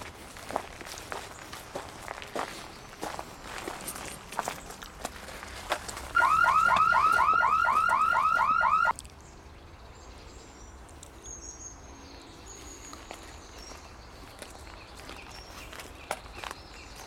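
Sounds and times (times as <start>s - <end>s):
electronic alarm siren chirping: 6.1s - 8.9s.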